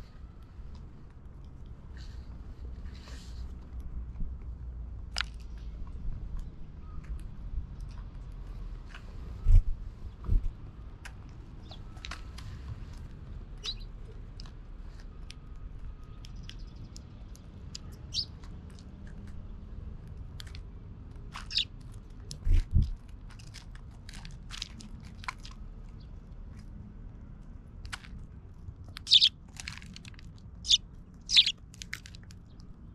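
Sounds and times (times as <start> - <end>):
birds cracking seeds: 11.6 - 15.4, 20.1 - 22.4, 28.8 - 32.9
short bird chirps: 21.4 - 21.7, 29.0 - 29.3, 30.6 - 31.5.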